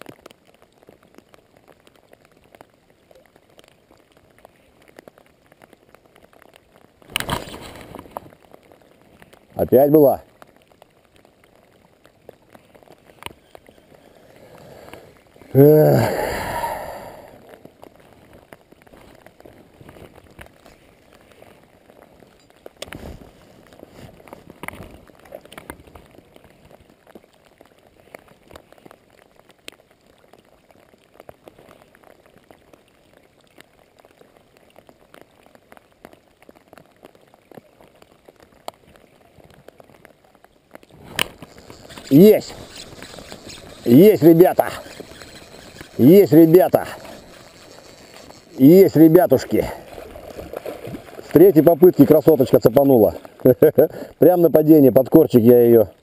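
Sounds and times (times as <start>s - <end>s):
rain patter: 0.0s - 56.0s
raindrops ticking on rain jacket: 0.0s - 56.0s
man grunting: 15.6s - 16.8s.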